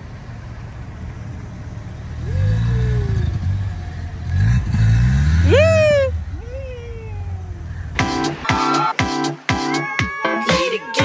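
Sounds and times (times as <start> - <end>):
rotary engine idling and revving: 0.0 - 8.4.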